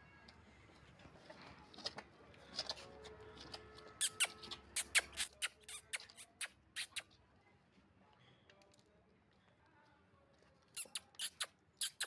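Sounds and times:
calf suckling wet smacking: 4.0 - 7.1.

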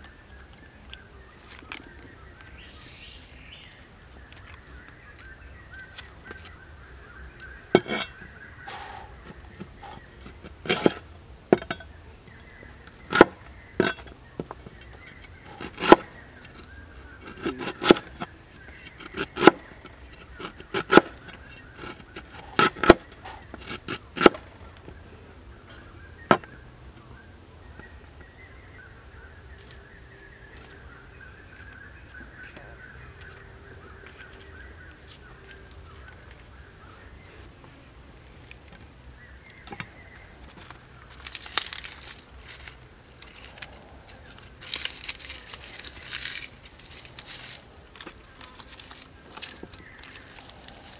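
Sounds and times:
cleaver chopping on wooden board: 13.1 - 14.0, 15.5 - 16.1, 17.2 - 18.3, 19.0 - 19.6, 20.4 - 21.2, 21.8 - 24.4.

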